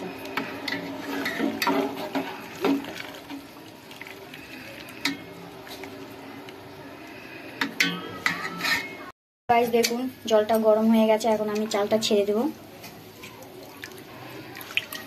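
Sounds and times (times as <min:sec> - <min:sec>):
pot of water bubbling: 0:00.0 - 0:08.6, 0:12.8 - 0:15.0.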